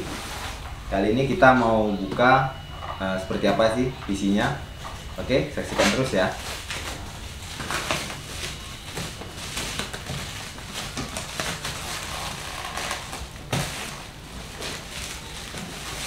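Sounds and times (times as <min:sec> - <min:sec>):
plastic wrap crinkling and tearing: 0:05.6 - 0:16.0.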